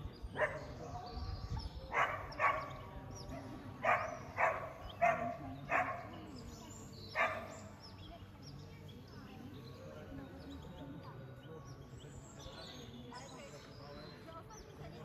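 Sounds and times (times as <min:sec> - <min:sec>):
dog barking: 0:00.3 - 0:00.8, 0:01.9 - 0:06.2, 0:07.2 - 0:07.7.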